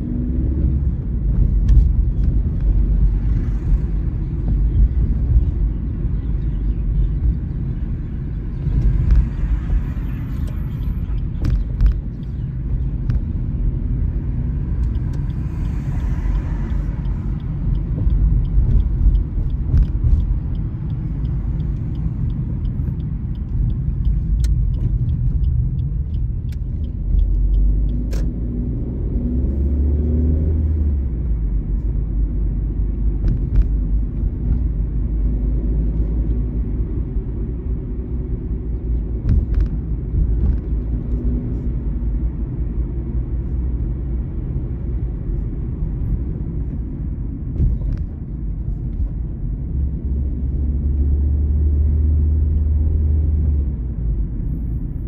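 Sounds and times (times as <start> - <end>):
car engine and road rumble: 0.0 - 55.0.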